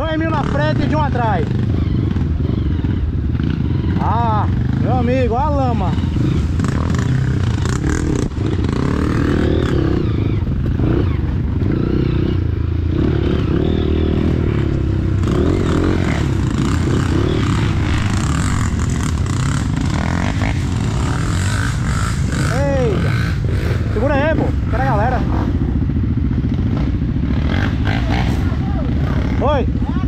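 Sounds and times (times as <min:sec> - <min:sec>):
dirt bike engine revving: 0:00.0 - 0:30.0
rattling and scraping in undergrowth: 0:04.6 - 0:09.8, 0:13.1 - 0:29.2.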